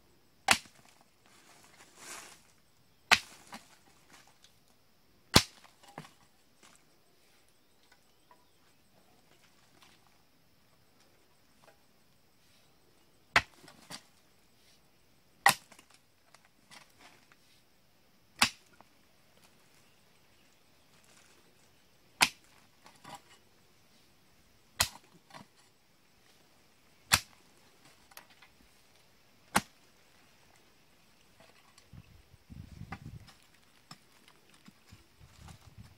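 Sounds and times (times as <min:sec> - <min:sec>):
pickaxe striking hard earth: 0:00.5 - 0:00.9, 0:03.1 - 0:03.7, 0:05.3 - 0:06.1, 0:13.3 - 0:14.0, 0:15.4 - 0:15.9, 0:18.4 - 0:18.7, 0:22.2 - 0:23.2, 0:24.8 - 0:25.5, 0:27.1 - 0:27.4, 0:29.5 - 0:29.8.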